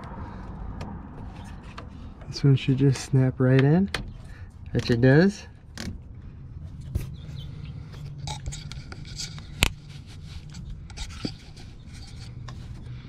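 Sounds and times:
hands rubbing plastic hoses: 0:07.8 - 0:12.9.

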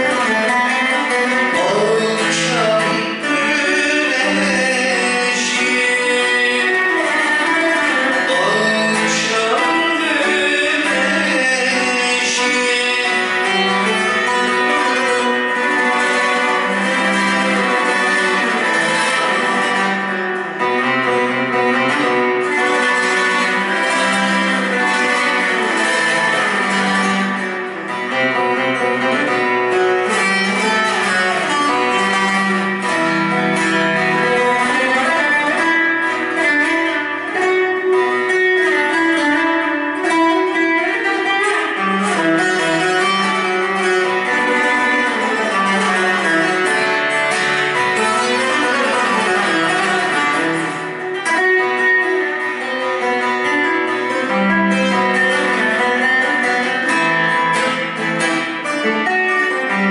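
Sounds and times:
plucked lute folk melody: 0:00.0 - 0:59.9.

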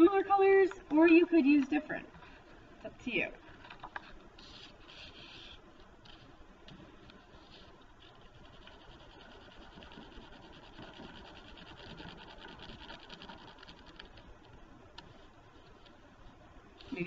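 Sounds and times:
pencil rasping on paper: 0:07.4 - 0:14.1.

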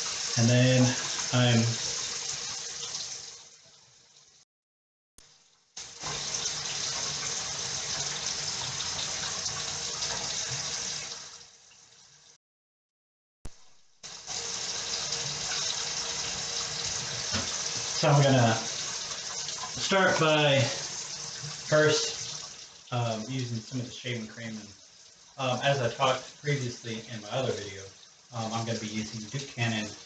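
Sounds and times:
faucet running into sink: 0:00.0 - 0:03.5, 0:05.8 - 0:11.8, 0:14.1 - 0:30.0.

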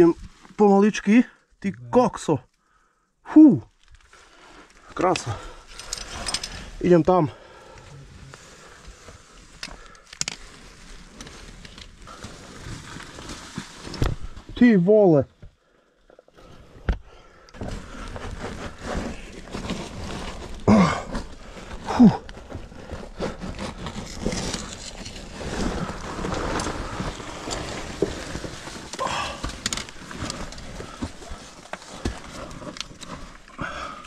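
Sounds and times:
gear scraping against rock: 0:17.6 - 0:34.0
person grunting: 0:20.7 - 0:21.1.

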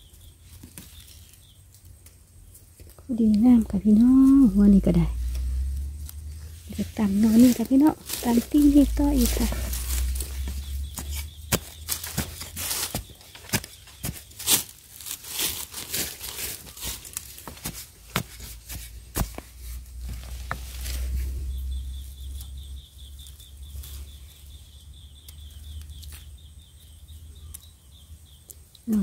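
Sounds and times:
dirt and dry leaves rustling: 0:00.0 - 0:29.0
metal blade chopping into dry soil: 0:10.9 - 0:14.8.

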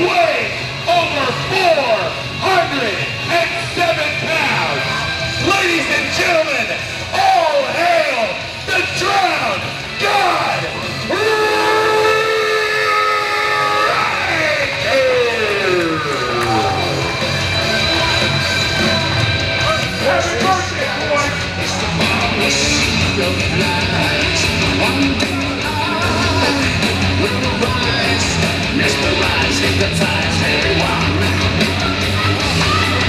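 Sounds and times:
heavy rock music: 0:00.0 - 0:33.0
shouted vocals: 0:10.0 - 0:18.2, 0:24.8 - 0:33.0.

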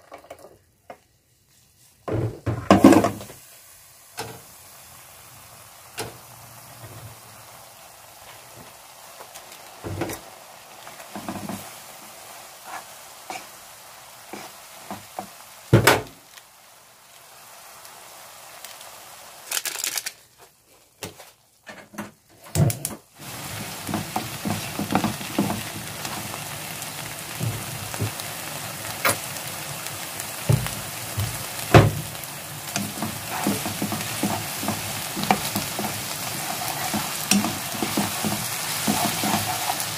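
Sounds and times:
noodles sizzling in a pan: 0:00.0 - 0:21.6, 0:22.2 - 0:39.9
knocks against a pan: 0:15.8 - 0:16.1
spatula clicking and scraping: 0:32.7 - 0:39.9.

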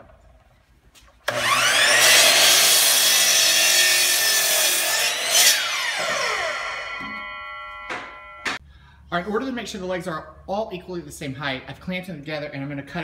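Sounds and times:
miter saw whine: 0:01.3 - 0:08.6
saw blade cutting wood: 0:01.3 - 0:08.6.

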